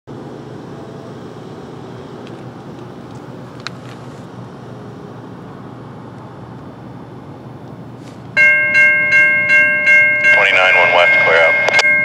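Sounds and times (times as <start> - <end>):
railroad crossing electronic bell: 8.4 - 12.0.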